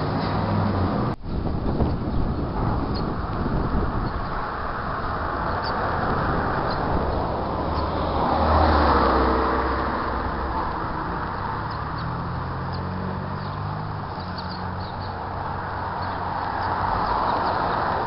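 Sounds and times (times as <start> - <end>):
outdoor traffic noise: 0.0 - 18.0
car passing: 2.3 - 18.0.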